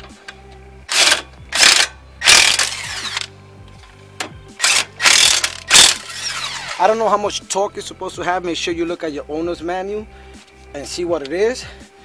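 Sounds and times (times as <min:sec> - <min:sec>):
cordless impact wrench bursts: 0:00.9 - 0:03.3, 0:04.6 - 0:06.8.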